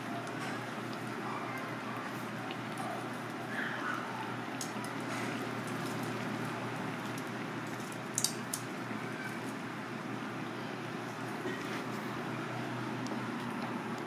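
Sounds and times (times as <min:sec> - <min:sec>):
shells sizzling on a grill: 0:04.3 - 0:10.4.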